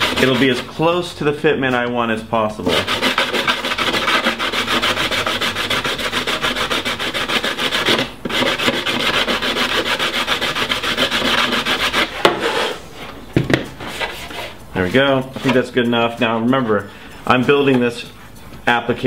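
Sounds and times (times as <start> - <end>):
sander rasping on plastic: 0.0 - 0.8, 2.6 - 12.8.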